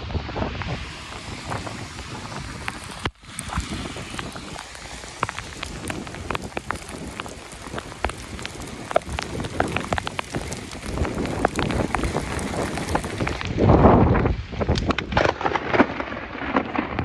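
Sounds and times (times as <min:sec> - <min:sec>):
rain hiss: 0:00.0 - 0:17.0
raindrops ticking on phone: 0:01.9 - 0:13.5.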